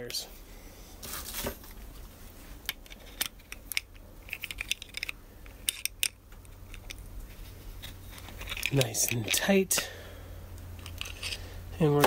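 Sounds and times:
small metal scrapes: 6.5 - 9.5, 10.8 - 11.6.

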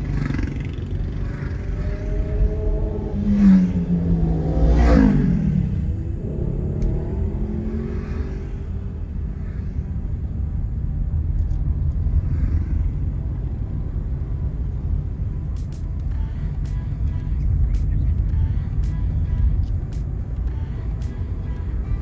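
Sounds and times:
vehicle engine note: 0.0 - 10.1
car road rumble: 0.0 - 22.0.

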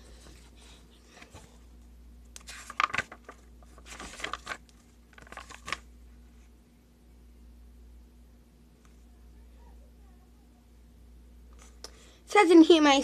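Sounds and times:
book pages rustling: 2.4 - 6.5.

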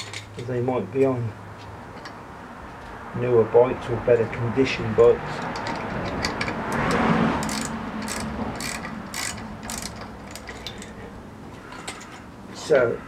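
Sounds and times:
ratchet wrench clicking: 5.4 - 11.0.

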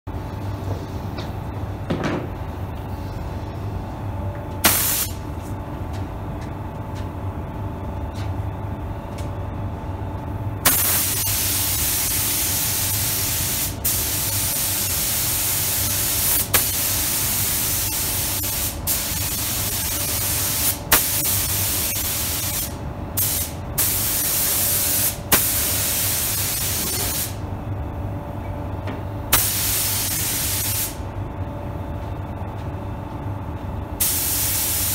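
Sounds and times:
steady low hum: 0.1 - 34.9
spray gun air hiss: 4.6 - 5.2, 10.6 - 27.4, 29.3 - 31.0, 34.0 - 34.9.

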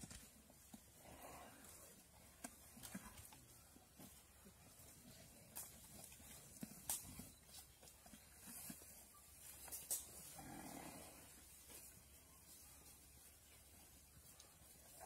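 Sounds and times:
sharp snaps and cracks: 6.8 - 7.1, 9.7 - 10.1.

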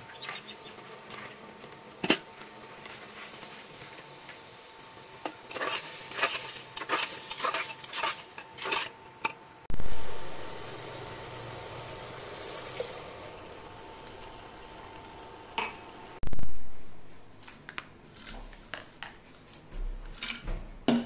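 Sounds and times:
metal spoon scraping a pot: 5.2 - 9.4
water poured into hot pot: 9.8 - 15.2.

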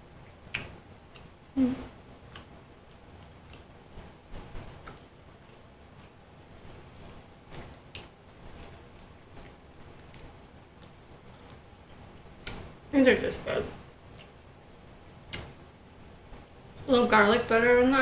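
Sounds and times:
mouth clicks and chewing: 0.5 - 1.3, 4.8 - 5.1.

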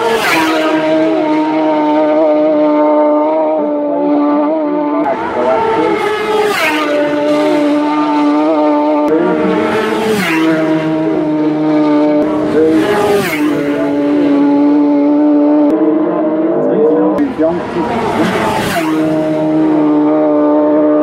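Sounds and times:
race motorcycles passing: 0.0 - 21.0.

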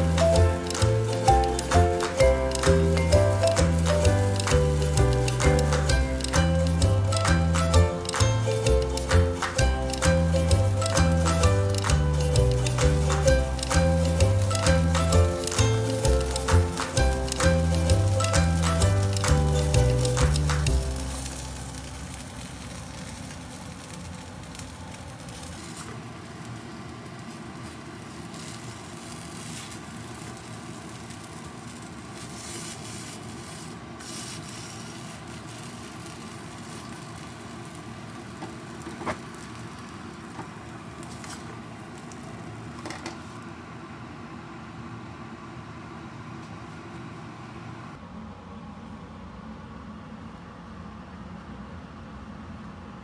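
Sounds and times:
food sizzling in oil: 0.0 - 42.2.

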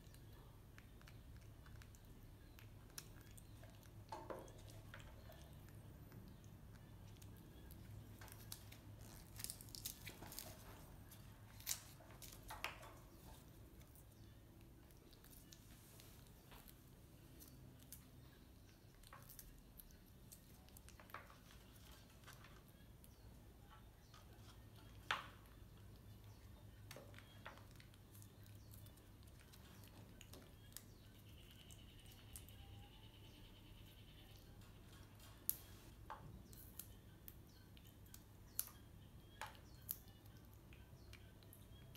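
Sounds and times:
faint clicks and taps: 0.0 - 32.7.

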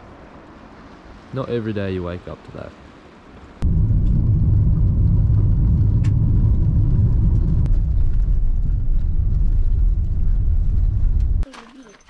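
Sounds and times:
tyres on gravel and engine rumble: 3.6 - 12.0.

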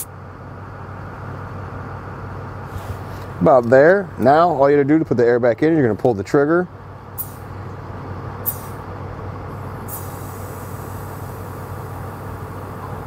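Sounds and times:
tire compressor running: 0.0 - 5.0, 6.7 - 13.0
truck engine idling: 0.0 - 13.0
air hissing from inflator gun: 7.2 - 7.5, 8.4 - 8.8, 9.5 - 13.0.

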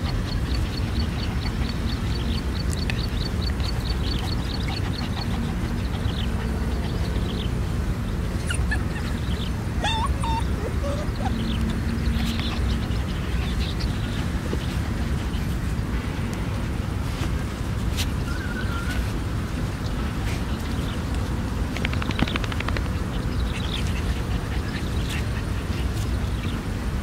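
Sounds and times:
steady low rumble: 0.0 - 27.0
puppy whimpering: 8.3 - 12.9.

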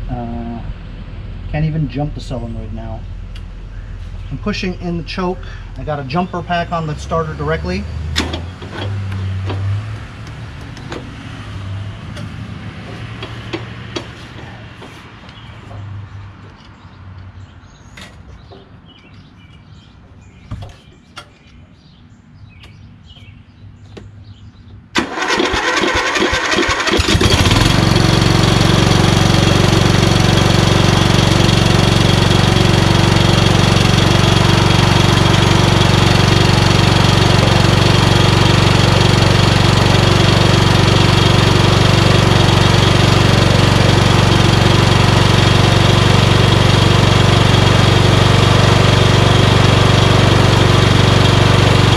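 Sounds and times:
engine starter cranking: 25.0 - 27.9
lawn tractor engine running: 25.0 - 51.9.

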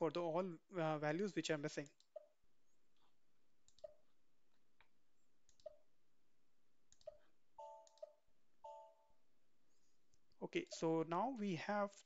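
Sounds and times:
computer mouse clicks: 3.6 - 4.1, 4.8 - 5.8, 6.9 - 8.2.

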